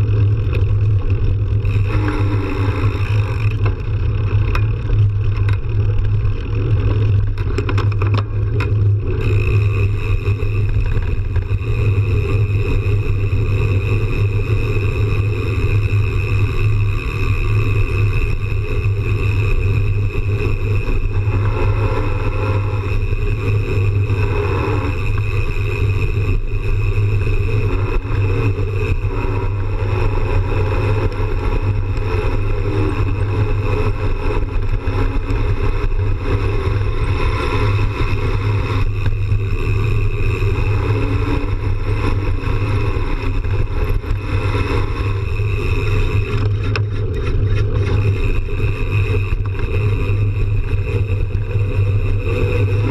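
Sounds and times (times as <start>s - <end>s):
bike tyres on dirt trail: 0.0s - 52.9s
wind on camera: 0.0s - 52.9s.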